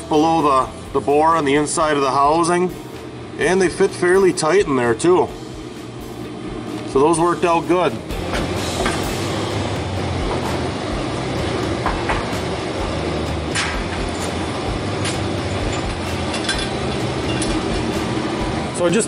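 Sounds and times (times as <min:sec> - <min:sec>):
mechanical hum and hiss: 0:00.0 - 0:19.0
metal parts clinking: 0:15.0 - 0:17.6.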